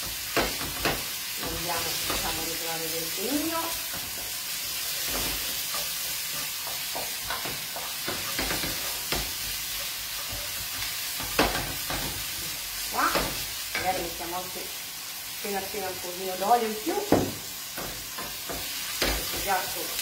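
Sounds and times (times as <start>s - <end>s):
vegetables sizzling in oil: 0.0s - 20.0s
knocks and scrapes against pan: 3.8s - 12.3s.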